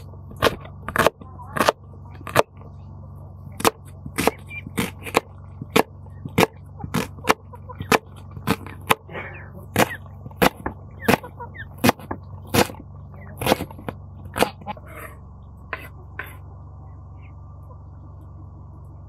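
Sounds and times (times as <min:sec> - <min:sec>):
knife cutting onion: 0:00.0 - 0:02.6, 0:03.5 - 0:09.1, 0:09.7 - 0:14.7.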